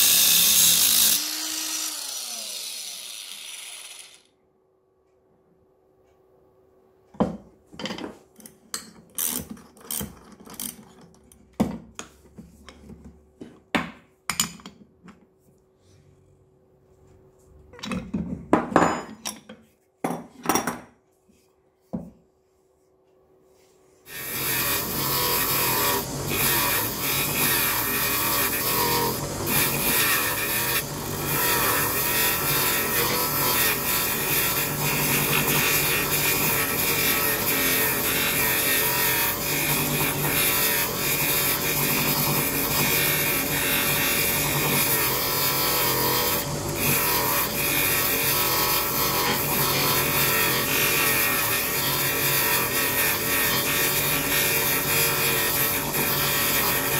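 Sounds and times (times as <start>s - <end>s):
disc sander grinding wood: 0.0s - 4.3s, 24.1s - 56.9s.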